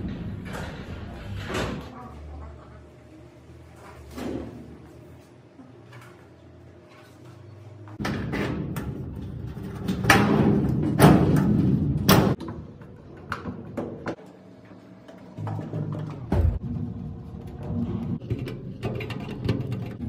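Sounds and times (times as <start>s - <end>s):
knocks and clatter of cabinet parts: 8.0s - 14.2s.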